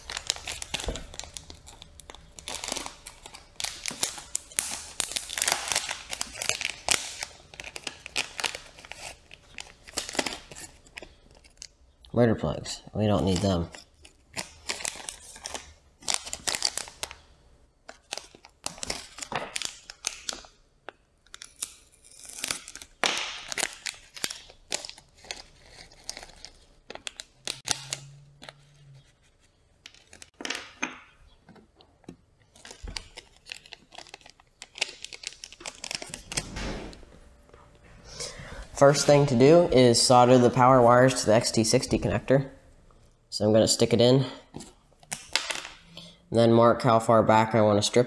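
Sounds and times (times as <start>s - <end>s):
plastic bag tearing and crinkling: 0.0s - 11.6s, 21.4s - 28.6s, 32.5s - 36.5s.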